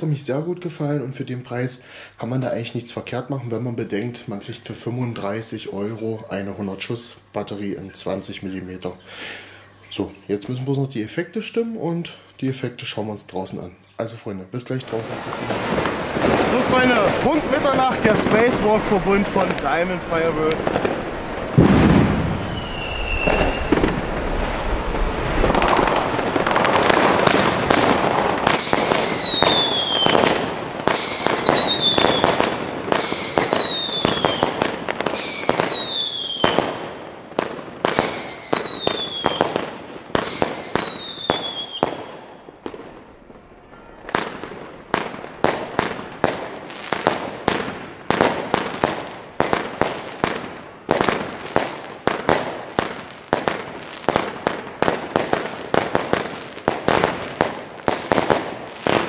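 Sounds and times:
firework shots and crackling: 0:14.8 - 0:59.0
falling whistle: 0:22.4 - 0:24.0, 0:40.2 - 0:41.8.

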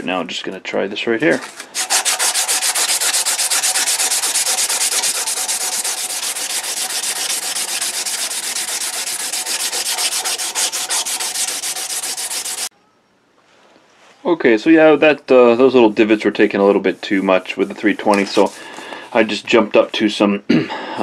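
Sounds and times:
sandpaper scraping rasp: 0:01.3 - 0:12.7, 0:15.6 - 0:19.4.

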